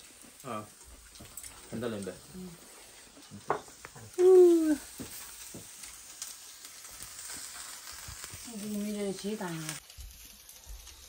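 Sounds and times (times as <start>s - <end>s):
faint hiss: 0.0s - 11.0s
person making hoo sound: 4.2s - 4.9s.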